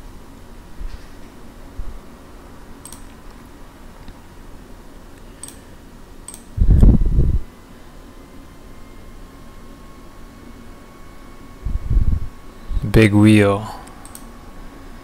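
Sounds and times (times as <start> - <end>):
computer mouse clicks: 2.8 - 3.3, 5.4 - 5.6, 6.3 - 6.5, 13.8 - 14.3.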